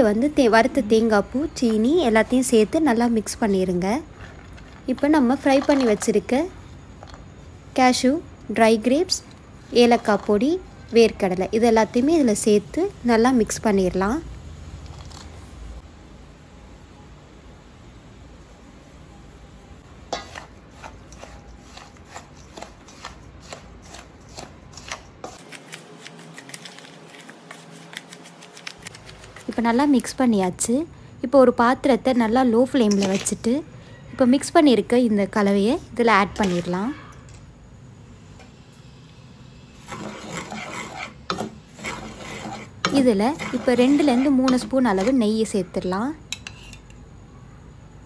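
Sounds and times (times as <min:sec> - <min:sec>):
spoon scraping metal bowl: 0:20.1 - 0:25.4, 0:32.8 - 0:33.5, 0:36.3 - 0:37.2, 0:39.8 - 0:45.5, 0:46.3 - 0:47.0.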